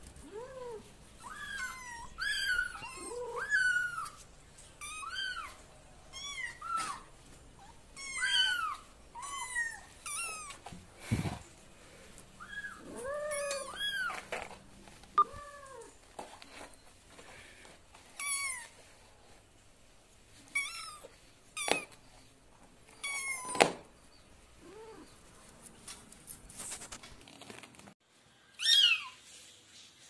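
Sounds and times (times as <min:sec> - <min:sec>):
kittens meowing: 0:00.2 - 0:04.2.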